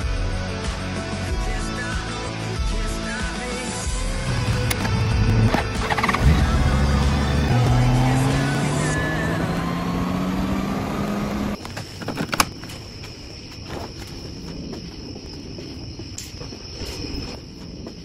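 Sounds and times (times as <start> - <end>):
crickets chirring: 3.3 - 10.7, 11.5 - 18.0
motorcycle engine running: 4.2 - 11.6
sharp clicks: 4.3 - 6.6.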